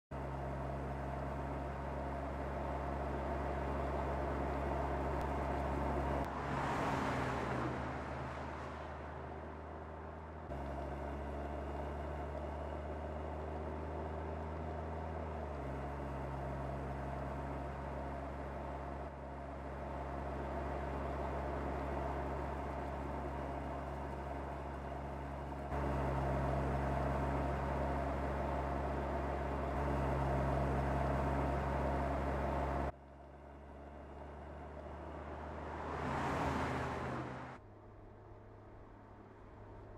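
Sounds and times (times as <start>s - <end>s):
car engine cruising: 0.0s - 39.9s
tyre and road noise: 0.1s - 39.9s
car passing by: 5.2s - 10.6s, 34.4s - 37.6s.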